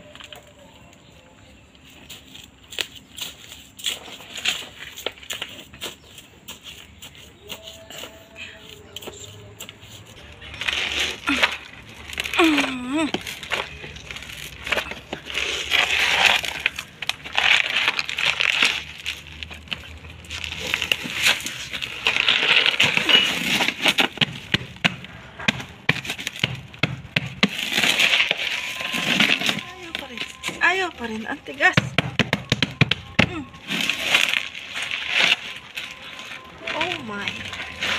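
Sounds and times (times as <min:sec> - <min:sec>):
soil crumbling in plastic container: 0:10.2 - 0:24.8, 0:27.4 - 0:31.7, 0:33.0 - 0:37.9.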